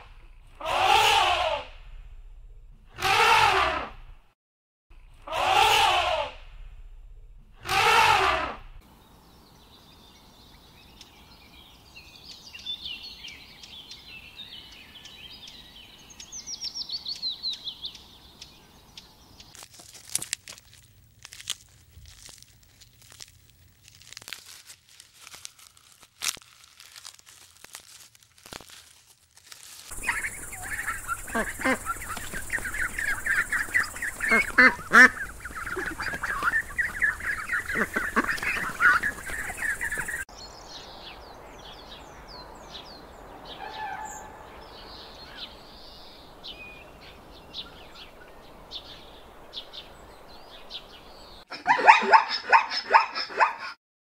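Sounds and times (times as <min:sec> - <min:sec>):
small birds chirping: 0:08.9 - 0:24.5, 0:29.7 - 0:51.5
animal crunching food: 0:19.5 - 0:40.1.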